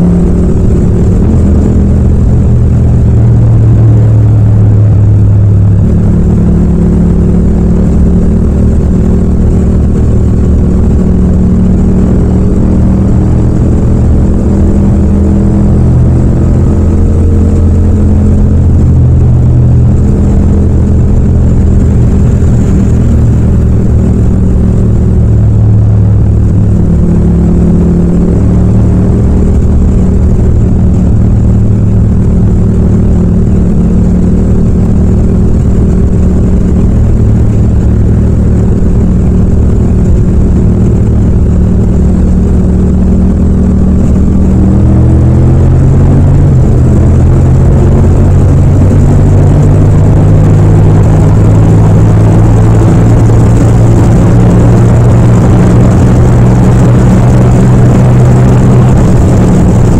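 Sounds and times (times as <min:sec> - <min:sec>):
motorcycle engine pulling steadily: 0:00.0 - 0:59.9.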